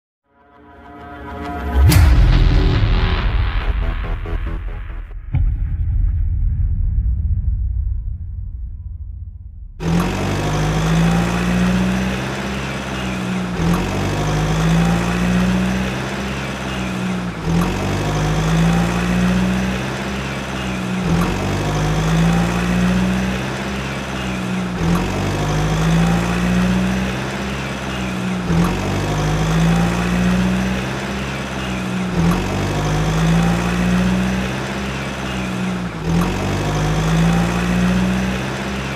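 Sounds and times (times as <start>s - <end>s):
car engine idling: 9.8s - 38.9s.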